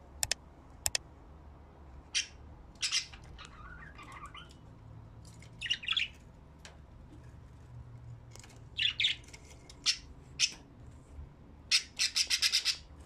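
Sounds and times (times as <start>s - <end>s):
budgerigars chirping: 2.1s - 4.6s, 5.6s - 6.2s, 8.8s - 10.6s, 11.7s - 12.9s
budgerigar warbling chatter: 11.7s - 12.9s.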